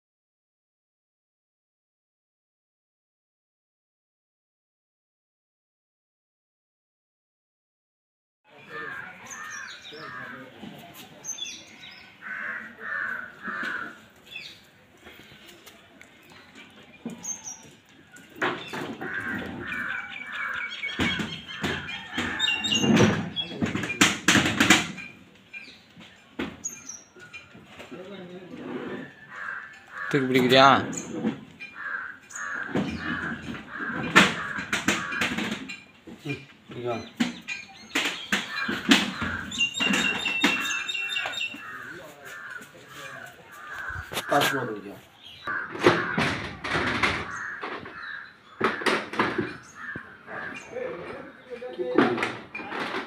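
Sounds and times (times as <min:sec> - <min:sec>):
crows cawing: 0:08.6 - 0:10.6, 0:11.8 - 0:14.5, 0:18.7 - 0:22.8, 0:29.1 - 0:30.8, 0:31.7 - 0:35.7, 0:38.4 - 0:51.5
small birds chirping: 0:13.4 - 0:24.0, 0:25.4 - 0:28.3, 0:36.2 - 0:46.2
knocking and clattering: 0:21.0 - 0:25.7.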